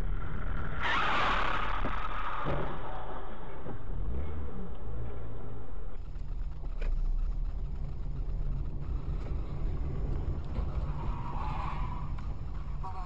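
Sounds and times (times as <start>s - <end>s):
car driving rumble: 0.0s - 13.0s.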